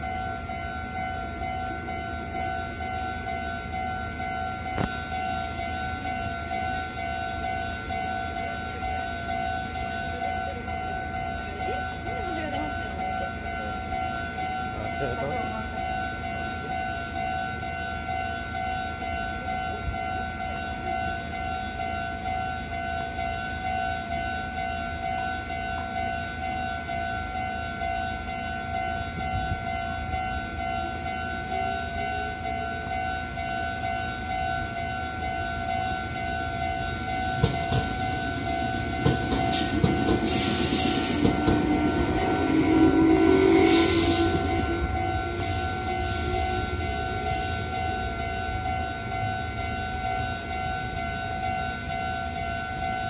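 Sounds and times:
level crossing alarm ringing: 0:00.0 - 0:53.0
train passing: 0:00.0 - 0:53.0
wheel squeals: 0:37.0 - 0:46.6.

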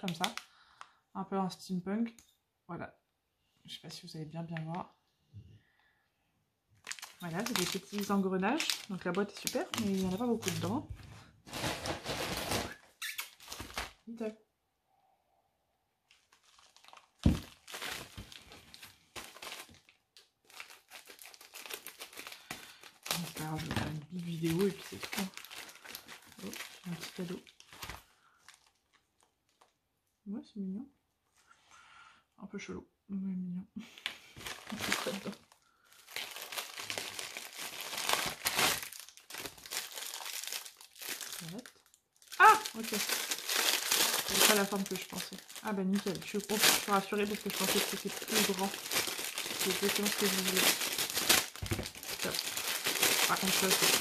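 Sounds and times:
packaging crinkling: 0:00.0 - 0:00.9, 0:06.8 - 0:14.1, 0:16.1 - 0:29.8, 0:34.0 - 0:54.0.

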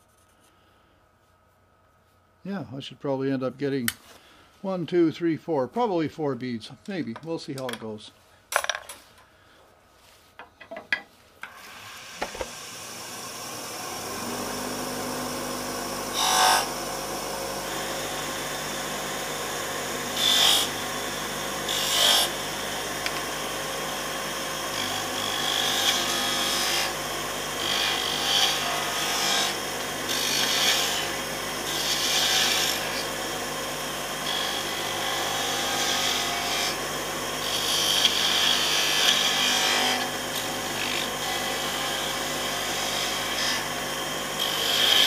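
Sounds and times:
lathe motor humming: 0:11.9 - 0:45.0.

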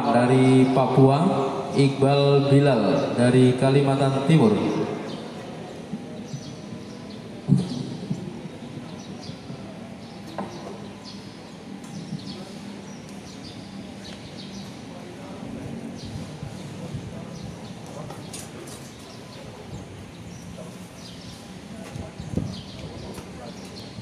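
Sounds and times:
open-air venue noise: 0:00.0 - 0:24.0
small birds chirping: 0:08.6 - 0:24.0.

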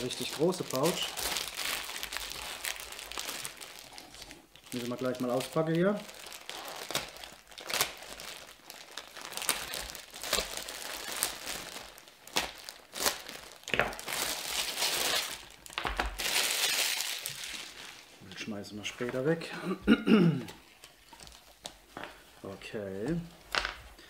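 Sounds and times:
knife slitting plastic bag: 0:00.0 - 0:03.6, 0:04.8 - 0:15.4, 0:16.2 - 0:18.1
plastic bag crinkling: 0:00.0 - 0:19.3, 0:20.5 - 0:22.3.

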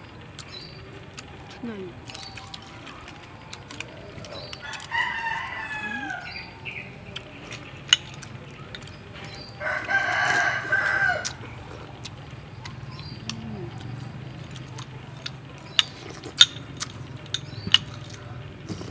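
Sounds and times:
rooster crowing: 0:04.0 - 0:06.9, 0:09.4 - 0:11.6.

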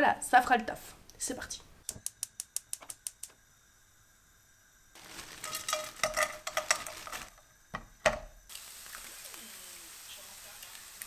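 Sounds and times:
vegetables sizzling in a frying pan: 0:03.5 - 0:11.0
knocks on a pan: 0:07.7 - 0:08.4.

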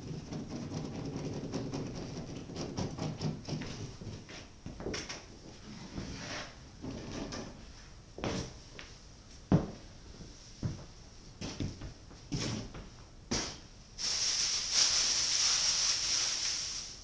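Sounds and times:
knocks and thumps: 0:00.0 - 0:04.2
steady high hiss: 0:13.3 - 0:17.0.

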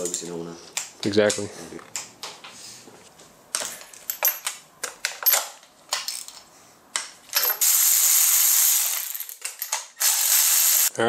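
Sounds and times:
electric ratchet whirring: 0:07.4 - 0:09.3, 0:10.0 - 0:10.9
hand ratchet clicking: 0:07.4 - 0:10.9.

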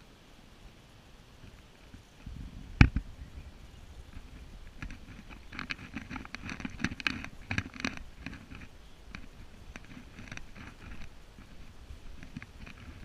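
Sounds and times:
footsteps through long grass: 0:03.6 - 0:13.0.

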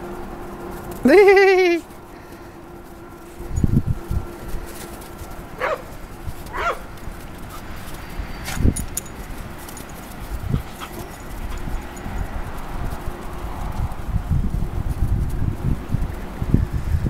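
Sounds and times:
dog yipping: 0:05.6 - 0:05.9, 0:06.5 - 0:06.9.

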